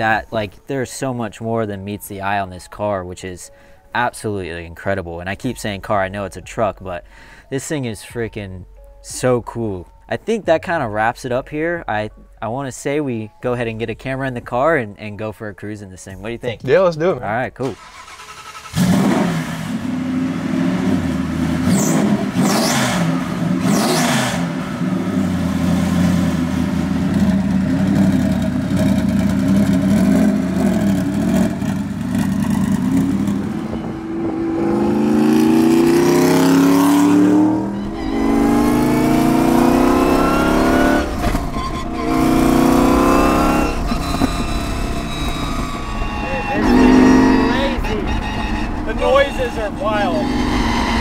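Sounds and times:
engine revving and accelerating: 18.0 - 51.0.

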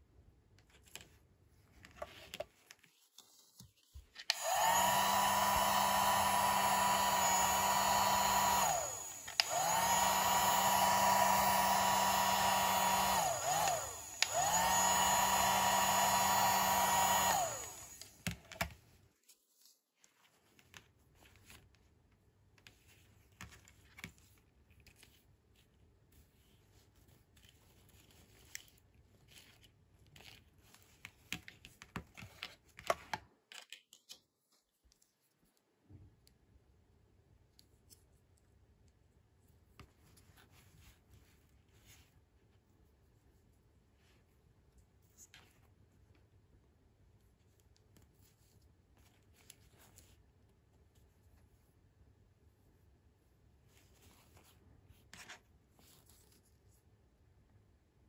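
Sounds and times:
toy hair dryer whining: 4.3 - 18.6.

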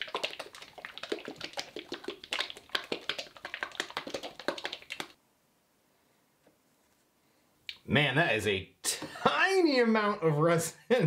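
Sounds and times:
plastic bottle being shaken: 0.0 - 5.2.

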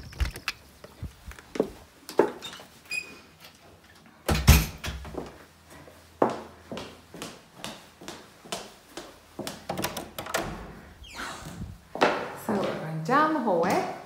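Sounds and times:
door squeak: 2.4 - 3.3, 10.4 - 11.6
door closing with heavy thud: 4.3 - 5.0
door handle and latch clicks: 9.7 - 10.6.

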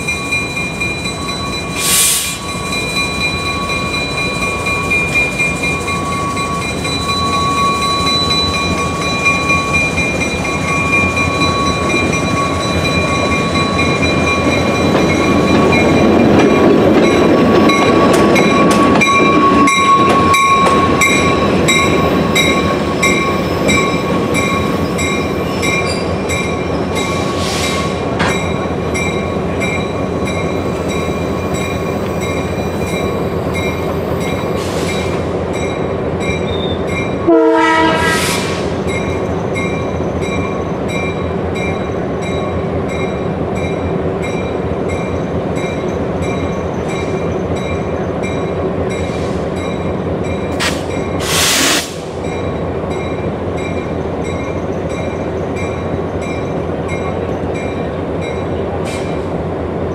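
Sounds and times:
diesel train running: 0.0 - 59.9
train horn blast: 37.2 - 38.7.

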